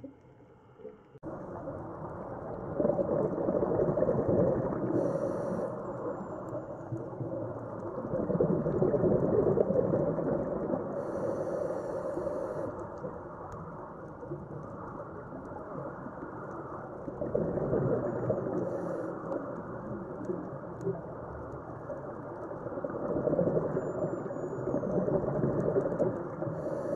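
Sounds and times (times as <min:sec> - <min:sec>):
rumbling exhaled bubbles: 0:01.2 - 0:11.4, 0:14.2 - 0:26.9
regulator inhalation hiss: 0:05.0 - 0:05.8, 0:11.0 - 0:12.8.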